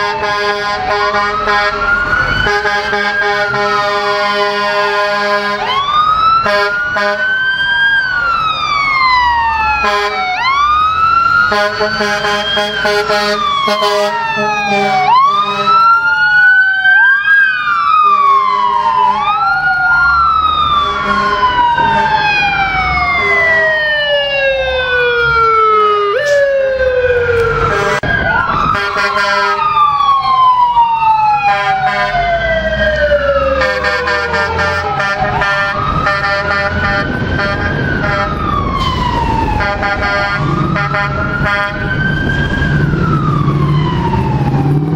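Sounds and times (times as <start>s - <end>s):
air horn blasts: 0.0s - 1.8s, 2.4s - 5.7s, 6.4s - 7.3s, 9.8s - 10.2s, 11.5s - 15.9s, 20.8s - 22.2s, 27.6s - 28.1s, 28.7s - 29.6s, 31.5s - 32.2s, 33.6s - 38.4s, 39.6s - 41.8s
low traffic rumble: 0.0s - 44.9s
mechanical sirens wailing: 0.0s - 44.9s.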